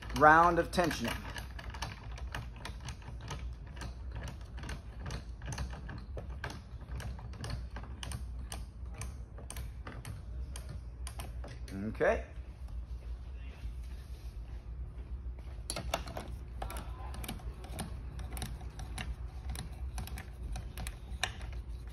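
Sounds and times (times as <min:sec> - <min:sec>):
tensioning tool clicking: 0:15.7 - 0:21.9.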